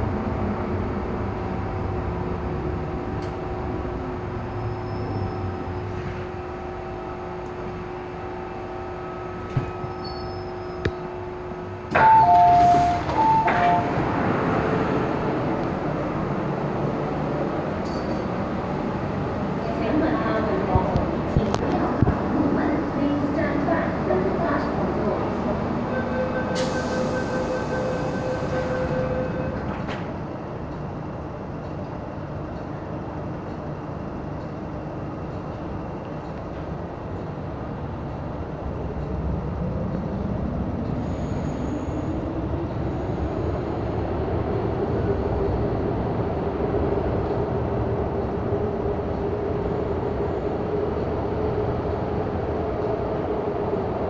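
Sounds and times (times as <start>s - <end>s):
steady hum inside train car: 0.0s - 54.0s
train doors sliding open: 4.4s - 6.5s, 9.2s - 19.1s, 24.6s - 30.8s
two-tone door warning: 11.9s - 14.2s, 25.9s - 29.9s
two-tone door chime: 12.0s - 14.0s.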